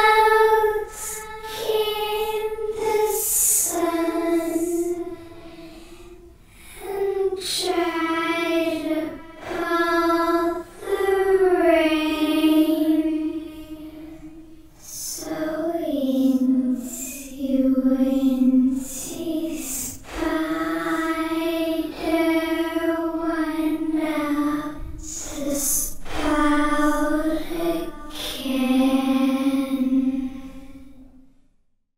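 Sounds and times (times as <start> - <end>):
girl singing lullaby melody: 0.0 - 31.0.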